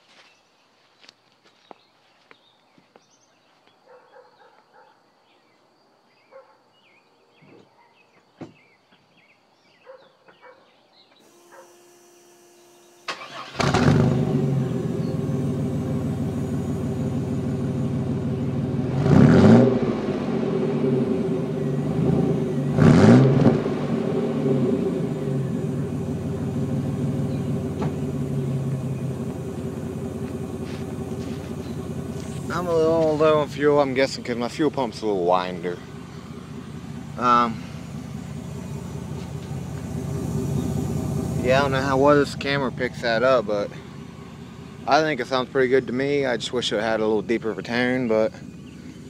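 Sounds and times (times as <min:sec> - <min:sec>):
engine revving: 0:11.2 - 0:49.0
fuel pump whine: 0:11.2 - 0:49.0
engine cranking and starting: 0:12.6 - 0:17.9.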